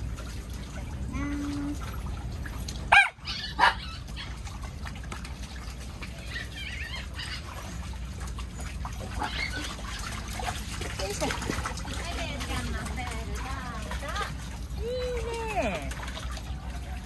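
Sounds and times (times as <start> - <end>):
dogs splashing in water: 0.0 - 17.0
dog barking: 2.9 - 3.9.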